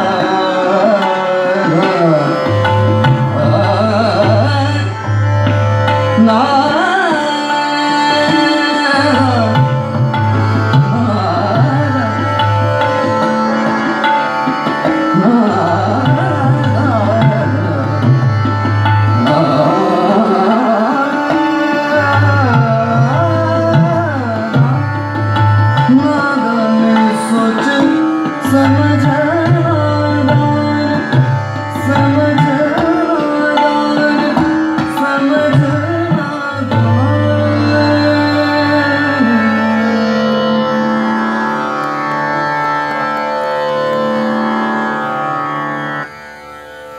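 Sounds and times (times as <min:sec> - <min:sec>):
man singing gliding phrases: 0:00.0 - 0:02.6, 0:03.2 - 0:05.0, 0:06.2 - 0:10.0, 0:10.8 - 0:12.4, 0:15.2 - 0:18.2, 0:19.1 - 0:25.1, 0:25.9 - 0:41.0
harmonium: 0:00.0 - 0:46.9
tabla: 0:00.0 - 0:46.9
tanpura drone: 0:00.0 - 0:46.9.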